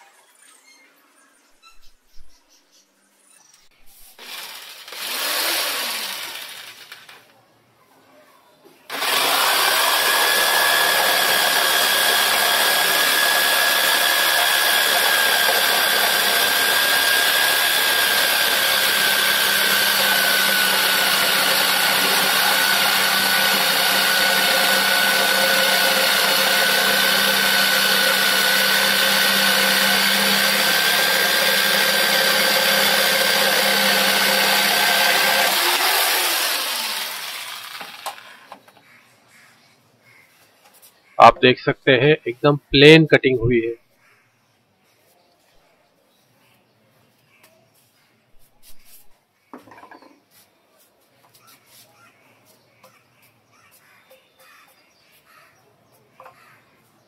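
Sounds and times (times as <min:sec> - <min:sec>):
jigsaw cutting wood: 0:04.2 - 0:07.3, 0:08.9 - 0:38.6.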